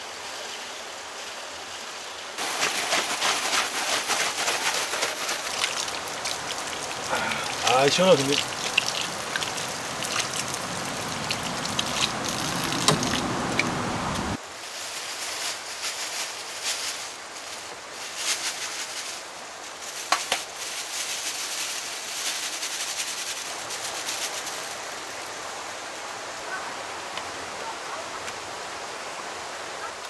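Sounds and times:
stream rushing: 0:00.0 - 0:14.5, 0:23.5 - 0:30.0
vegetables rinsed in water: 0:02.4 - 0:13.6.

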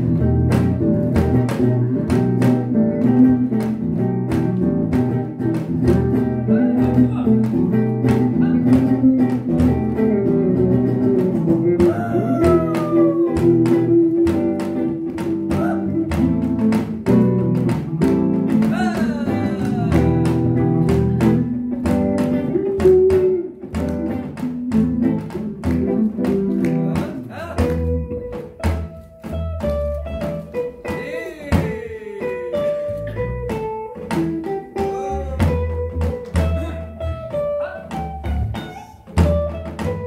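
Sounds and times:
electric bass: 0:00.0 - 0:30.8, 0:32.8 - 0:40.0
plucked guitar: 0:00.0 - 0:40.0.

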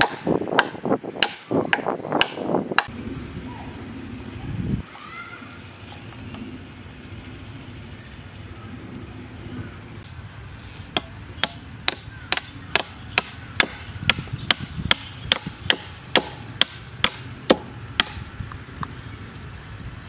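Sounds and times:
blade chopping palm trunk: 0:00.0 - 0:02.9, 0:10.9 - 0:18.2.

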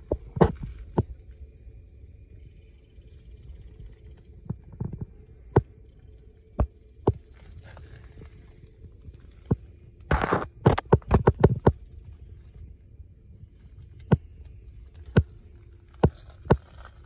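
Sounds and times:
low steady hum: 0:00.0 - 0:17.0
sharp knocks and clicks: 0:10.1 - 0:11.8.

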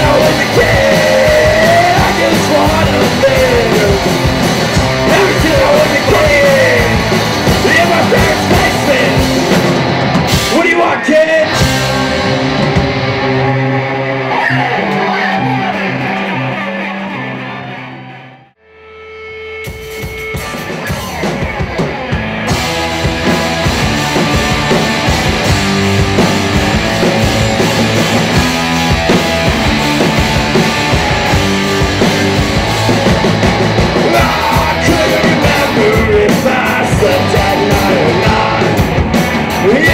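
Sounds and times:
male lead vocal: 0:00.0 - 0:09.4, 0:10.4 - 0:11.9, 0:33.8 - 0:39.9
live rock band playing: 0:00.0 - 0:18.2, 0:18.8 - 0:39.9.

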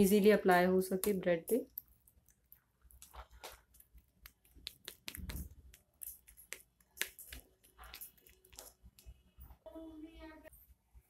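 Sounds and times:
metal spoon stirring jam in cup: 0:00.8 - 0:09.6.

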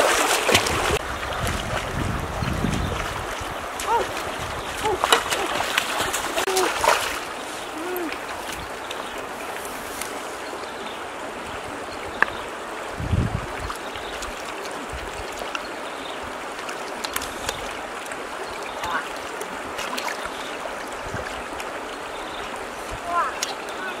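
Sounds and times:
hands splashing in water: 0:00.0 - 0:09.0
stream water running over rocks: 0:00.0 - 0:24.0.

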